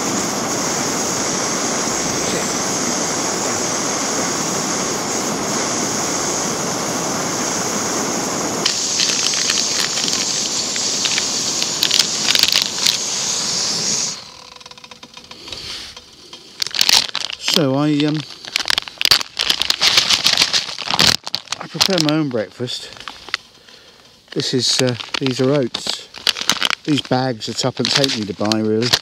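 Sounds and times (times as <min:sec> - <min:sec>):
camping stove hissing: 0:00.0 - 0:29.0
foil pouch crinkling: 0:08.6 - 0:13.4, 0:16.5 - 0:29.0.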